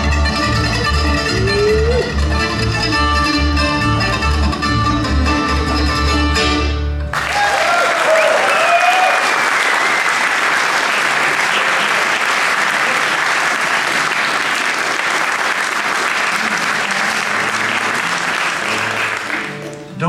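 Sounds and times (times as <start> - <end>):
cheers: 7.1 - 13.5
audience applauding: 7.1 - 19.9.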